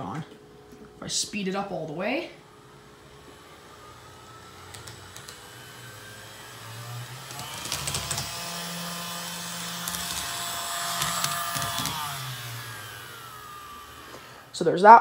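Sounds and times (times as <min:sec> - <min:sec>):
model train motor whining: 0:02.4 - 0:14.6.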